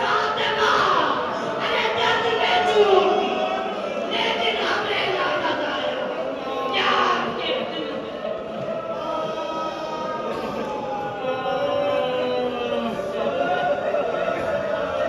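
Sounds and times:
crowd wailing: 0.0 - 15.0.

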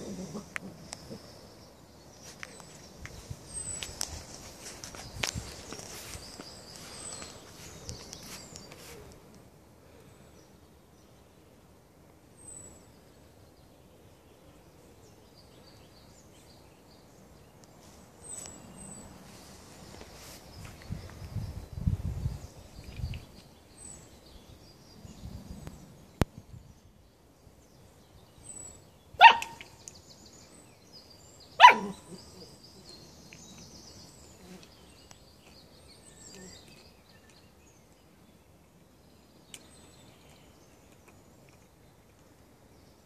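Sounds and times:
puppy barking: 29.2 - 29.7, 31.6 - 32.2.

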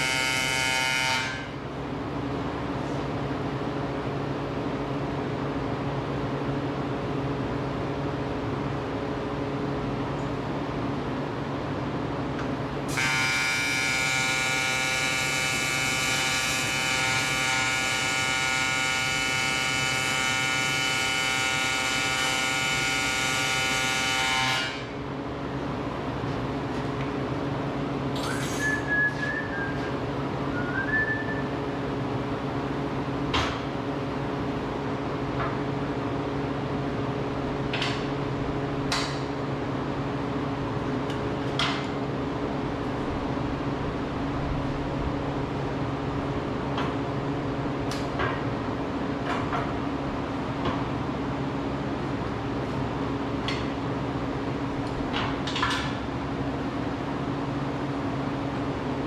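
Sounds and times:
welding arc buzzing: 12.9 - 24.9.

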